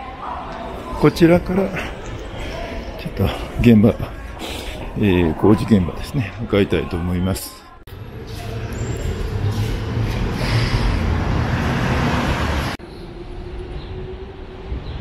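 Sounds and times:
quieter street traffic: 0.0 - 15.0
loud rumble of city traffic: 7.9 - 15.0.

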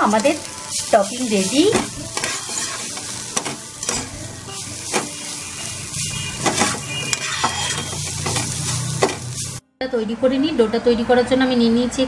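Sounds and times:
vegetables sizzling in oil: 0.0 - 9.6
metal spatula scraping pan: 0.2 - 9.6.

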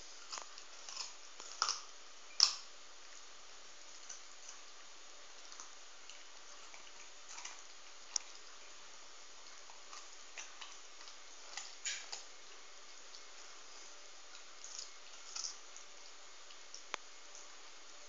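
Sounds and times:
dog crunching carrot: 0.0 - 2.7, 5.4 - 8.6, 9.4 - 13.6, 14.3 - 15.9.

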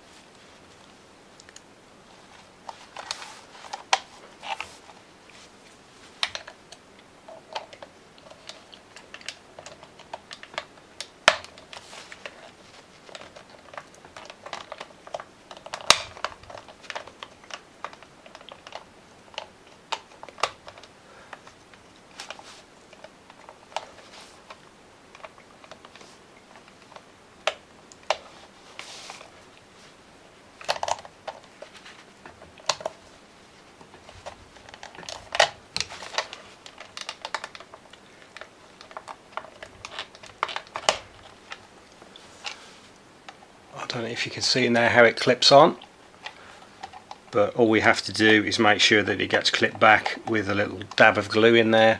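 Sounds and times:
sharp plastic cracks: 6.2 - 28.3, 30.6 - 33.0, 33.8 - 42.6.

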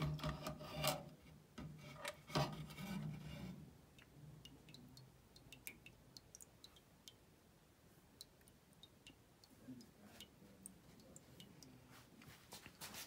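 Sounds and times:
drips ticking into can: 3.9 - 7.3, 8.1 - 12.9.

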